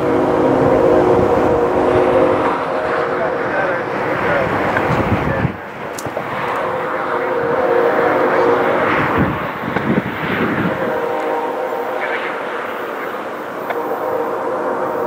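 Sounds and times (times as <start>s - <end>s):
locomotive air horn chord: 0.0s - 4.9s, 6.3s - 15.0s.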